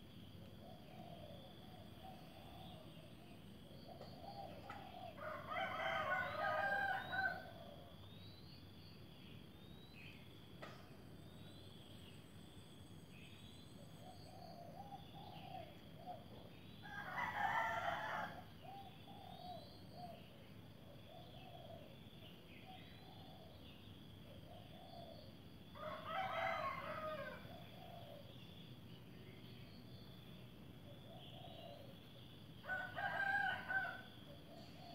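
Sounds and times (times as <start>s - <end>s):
rooster crowing: 5.1s - 7.6s, 16.8s - 18.5s, 25.8s - 27.5s, 32.6s - 34.2s.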